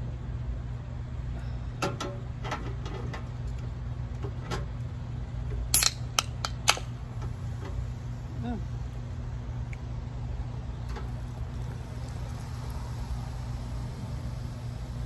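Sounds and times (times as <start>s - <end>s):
steady low hum: 0.0s - 15.0s
soda can tab popping open: 5.7s - 6.9s.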